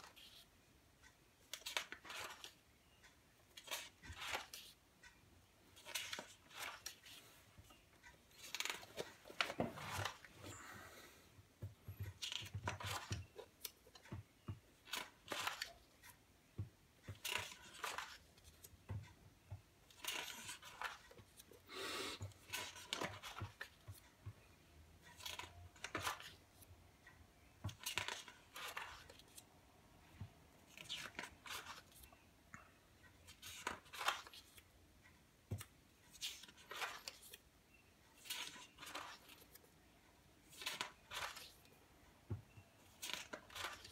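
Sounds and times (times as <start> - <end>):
book pages turning: 0.0 - 0.5, 1.4 - 2.6, 3.5 - 4.8, 5.7 - 10.6, 12.0 - 16.2, 17.0 - 19.0, 19.9 - 21.5, 22.2 - 24.1, 25.0 - 26.7, 27.6 - 29.5, 30.6 - 32.2, 33.2 - 34.6, 35.6 - 37.4, 38.2 - 39.7, 40.4 - 41.8, 42.8 - 43.9
paper rustling: 8.3 - 10.3, 40.5 - 41.7, 42.8 - 43.9.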